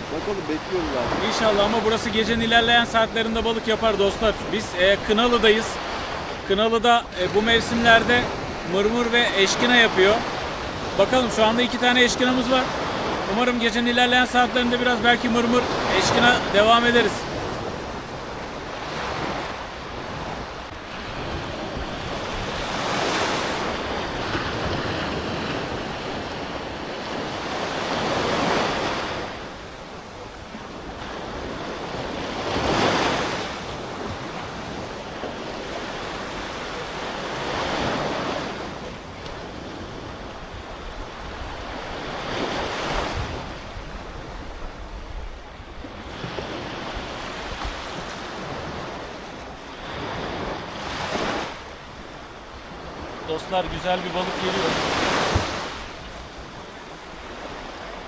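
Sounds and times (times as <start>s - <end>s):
sea waves breaking: 0.0s - 58.0s
wind noise on microphone: 42.4s - 48.8s.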